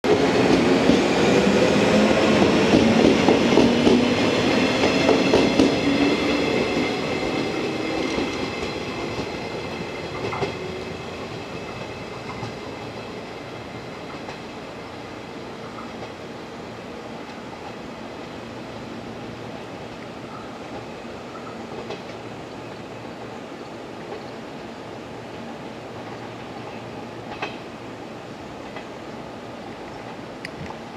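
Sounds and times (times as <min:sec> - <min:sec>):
wheels clacking over rail joints: 0:02.2 - 0:13.2.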